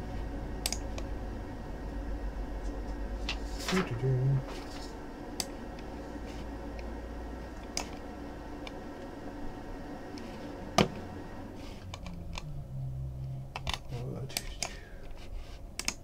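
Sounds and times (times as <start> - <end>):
steady low hum: 0.0 - 16.0
mouse and keyboard clicks: 15.8 - 16.0.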